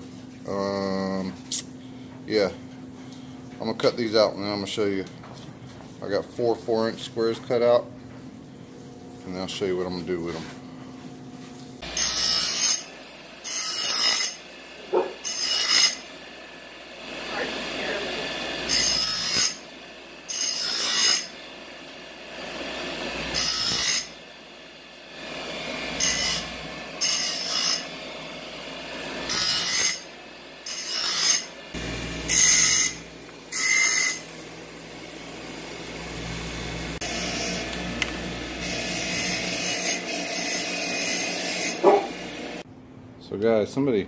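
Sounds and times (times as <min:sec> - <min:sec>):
grinder grinding metal plates: 0:11.8 - 0:42.6
grinder motor running: 0:11.8 - 0:42.7.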